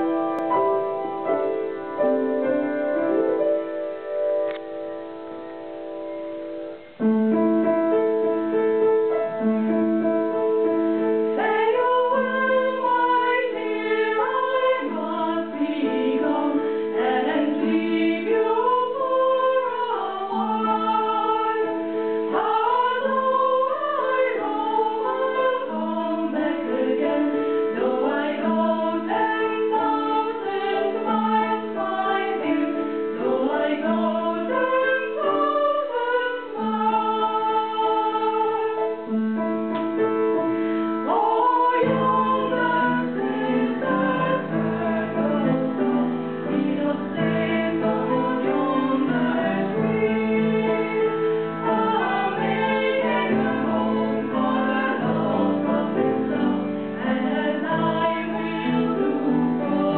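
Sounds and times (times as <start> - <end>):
piano chords: 0.0 - 59.9
women singing together: 11.3 - 39.0, 41.0 - 59.9.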